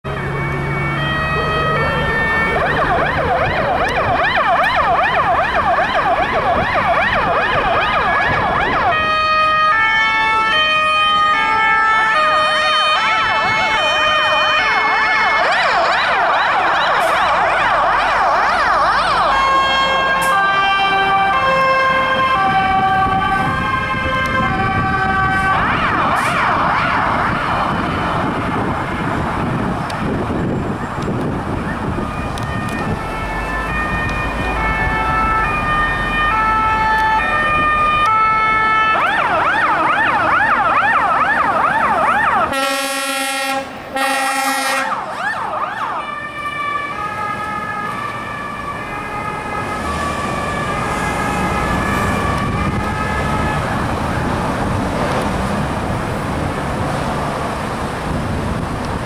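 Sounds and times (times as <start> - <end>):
engines and traffic: 0.0 - 59.0
fire engine sirens: 0.0 - 59.0
loud horn blasts: 42.5 - 45.0.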